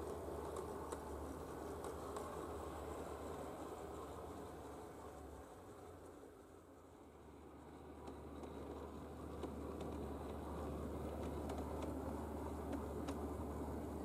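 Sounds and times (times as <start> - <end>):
light clicks of track: 0.0 - 4.8, 7.7 - 14.0
model streetcar rumble and hum: 0.0 - 14.0.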